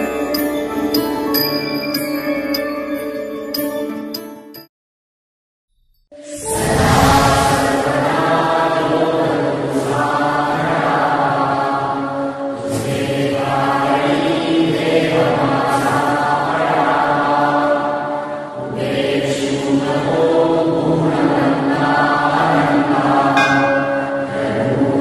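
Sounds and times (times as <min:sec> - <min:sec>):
group of voices chanting: 0:06.5 - 0:25.0.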